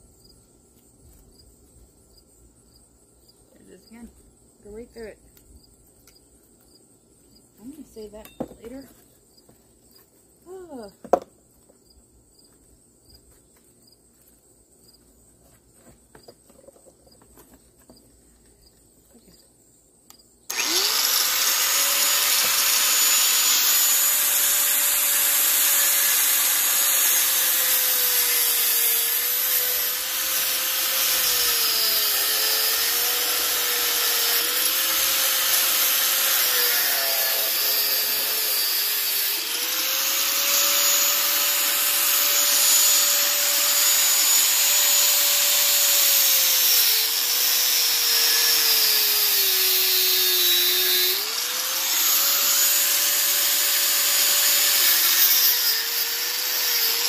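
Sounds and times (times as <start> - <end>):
angle grinder cutting metal: 20.5 - 57.0.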